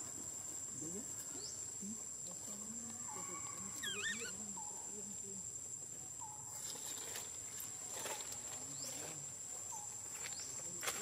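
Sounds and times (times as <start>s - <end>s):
high-pitched insect drone: 3.1s - 4.7s.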